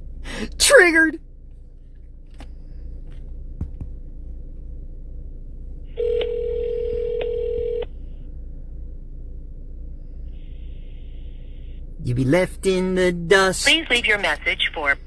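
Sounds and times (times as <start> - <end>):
ringback tone buzzing: 5.9 - 8.0.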